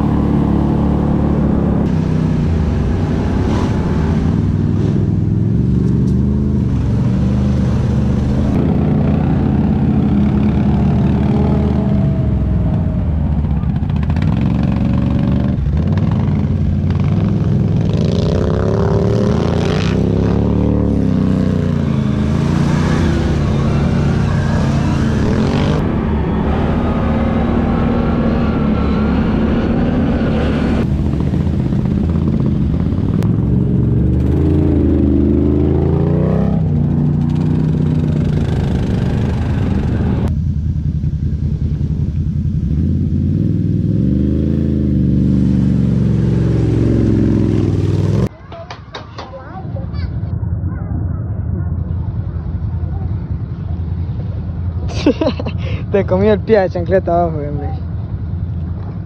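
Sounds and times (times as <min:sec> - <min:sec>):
quad engines revving: 0:00.0 - 0:40.3.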